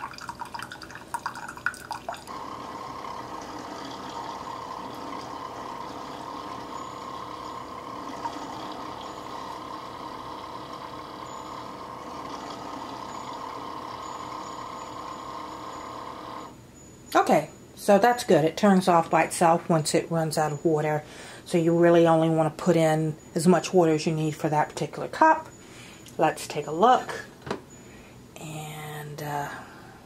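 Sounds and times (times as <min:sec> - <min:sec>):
coffee streaming into a glass cup: 0:00.0 - 0:15.9.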